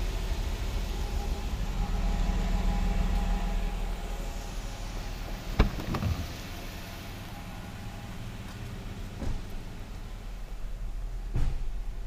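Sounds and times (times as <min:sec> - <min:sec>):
steady low rumble: 0:00.0 - 0:12.0
car door latch click: 0:05.6 - 0:06.4.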